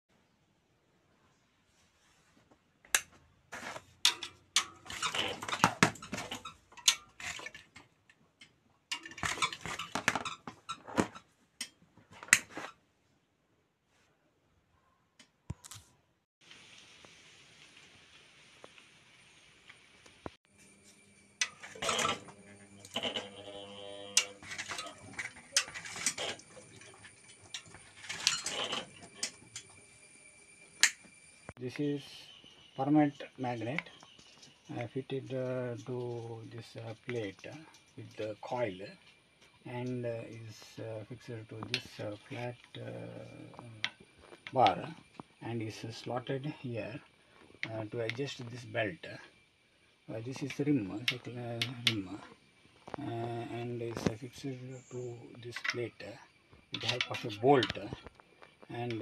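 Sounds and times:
metallic clattering and rattling: 0:04.0 - 0:08.2, 0:08.9 - 0:11.2, 0:24.3 - 0:29.7.

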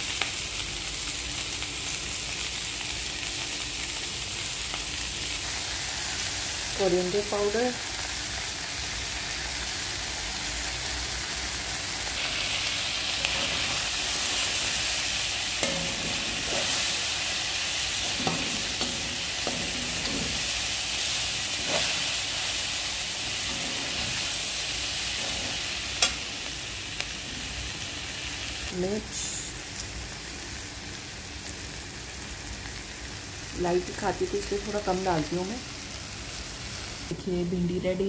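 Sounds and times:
vegetables sizzling in oil: 0:00.0 - 0:38.0
metal spoon scraping a pan: 0:12.2 - 0:22.6, 0:23.2 - 0:26.2.

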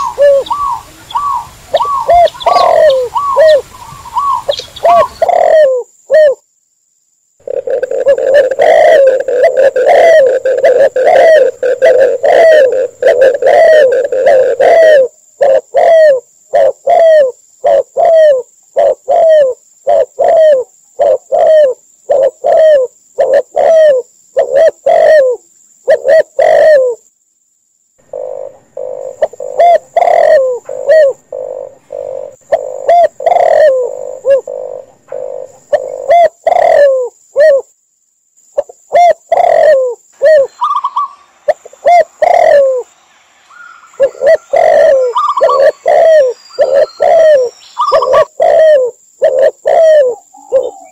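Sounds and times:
doves cooing: 0:00.0 - 0:06.4, 0:07.4 - 0:27.0, 0:28.0 - 0:37.7, 0:38.6 - 0:50.9
higher bird calls: 0:00.0 - 0:06.4, 0:07.4 - 0:27.0, 0:28.0 - 0:37.6, 0:38.6 - 0:50.9.

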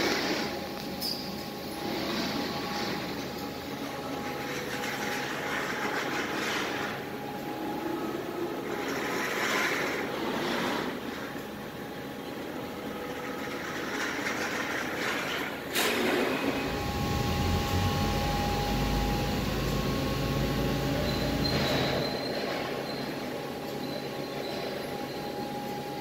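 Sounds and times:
laser cutter machine noise: 0:00.0 - 0:26.0
low rumble: 0:16.5 - 0:21.8.

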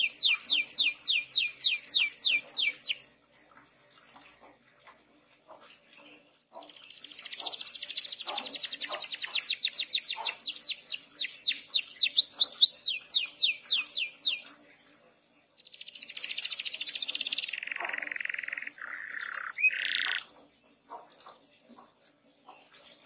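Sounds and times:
canary singing: 0:00.0 - 0:03.2, 0:06.6 - 0:14.6, 0:15.6 - 0:20.3.

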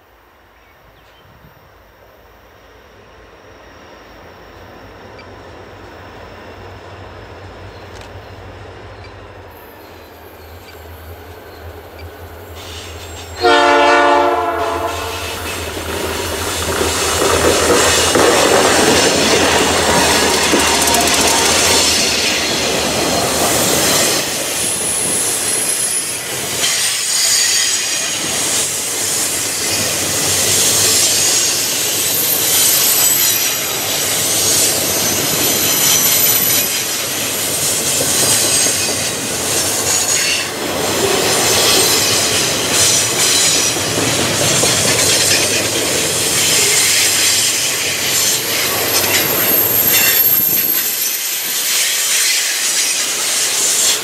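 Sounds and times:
freight cars rumbling and clattering: 0:15.4 - 0:24.3
high wheel squeal: 0:19.0 - 0:40.6, 0:44.6 - 0:54.0.

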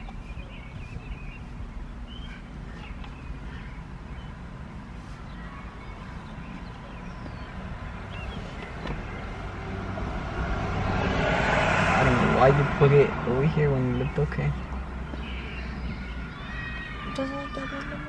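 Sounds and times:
bird chirps: 0:00.0 - 0:09.5, 0:13.7 - 0:17.8
car idling: 0:00.0 - 0:18.0.

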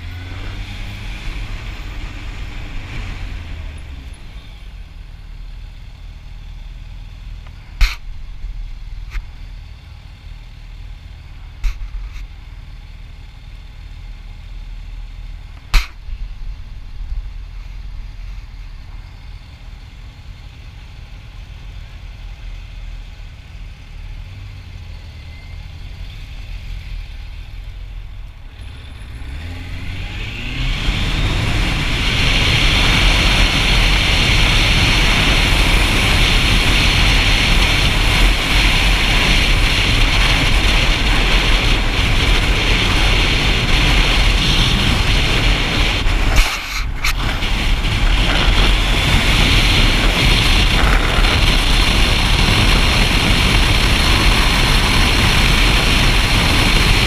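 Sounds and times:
motorcycle engine running: 0:00.0 - 0:57.0
wind rush on microphone: 0:29.7 - 0:57.0.

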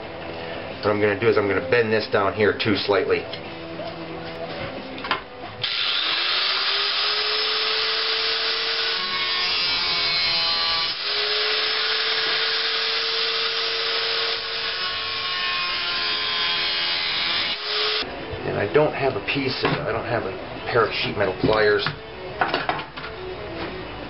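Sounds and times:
angle grinder grinding steel: 0:05.6 - 0:18.1.

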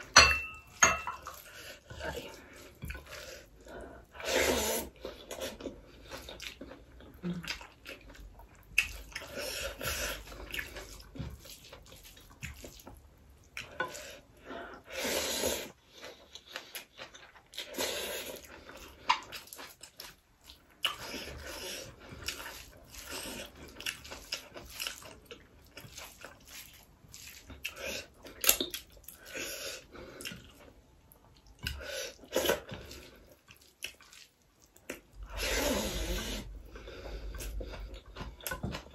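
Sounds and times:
wet chewing and lip smacking: 0:05.0 - 0:13.8, 0:16.0 - 0:35.3, 0:36.4 - 0:38.9.

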